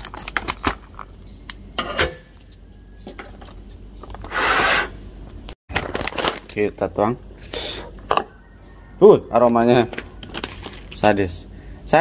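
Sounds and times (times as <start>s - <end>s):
foil bag crinkling: 0.0s - 1.2s, 5.7s - 6.9s, 9.9s - 11.1s.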